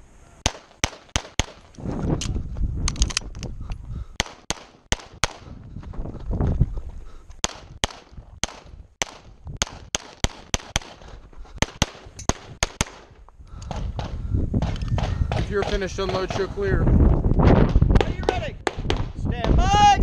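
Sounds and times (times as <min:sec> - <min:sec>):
pistol shots: 0:00.4 - 0:01.7, 0:04.2 - 0:05.4, 0:07.4 - 0:11.0, 0:11.6 - 0:13.1.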